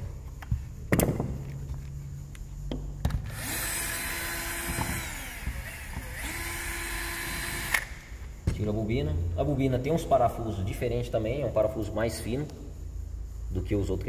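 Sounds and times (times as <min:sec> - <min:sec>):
small power tool running: 0:03.3 - 0:07.9.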